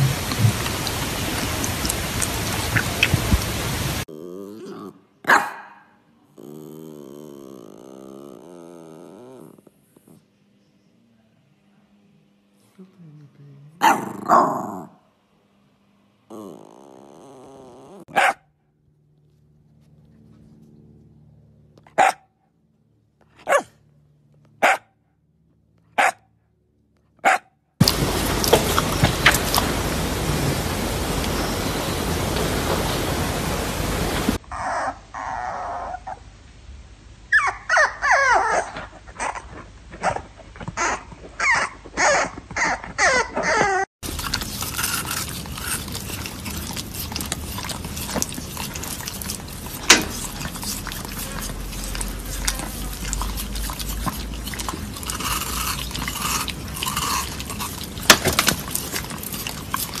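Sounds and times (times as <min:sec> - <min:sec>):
dog whining: 0:06.4 - 0:10.2, 0:16.3 - 0:18.2, 0:34.4 - 0:36.2, 0:37.3 - 1:00.0
steady hiss: 0:27.8 - 0:34.4.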